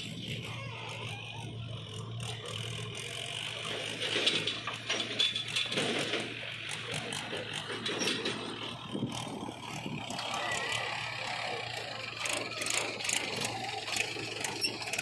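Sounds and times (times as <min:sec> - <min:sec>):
diesel engines humming: 0:00.0 - 0:15.0.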